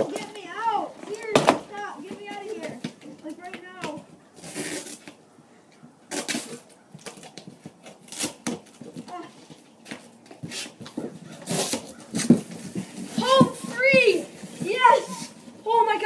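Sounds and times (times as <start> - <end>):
packing tape ripping: 6.1 - 8.6
cardboard flaps rustling: 6.1 - 15.9.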